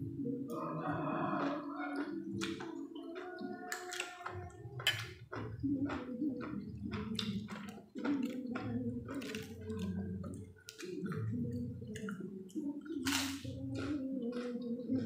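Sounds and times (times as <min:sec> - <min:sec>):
person chewing wetly: 0:00.4 - 0:15.0.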